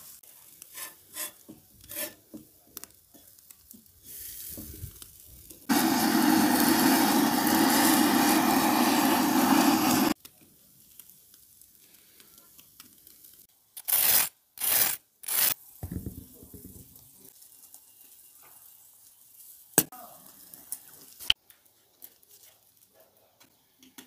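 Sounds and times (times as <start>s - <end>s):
faint grill sizzle: 0.0s - 24.0s
butane torch hissing: 5.6s - 10.2s.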